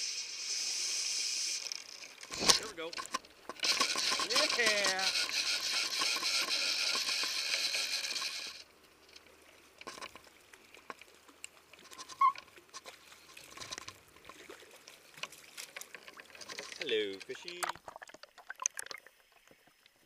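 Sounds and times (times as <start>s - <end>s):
fishing reel drag buzzing: 0.0s - 8.7s, 11.8s - 13.9s
rod and reel handling clicks: 1.6s - 14.4s, 15.2s - 17.8s.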